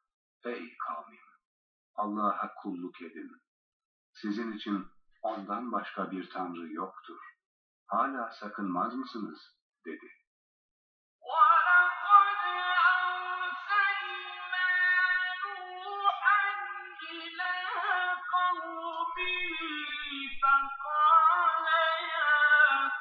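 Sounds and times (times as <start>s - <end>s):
person chanting recitation: 11.2s - 23.0s.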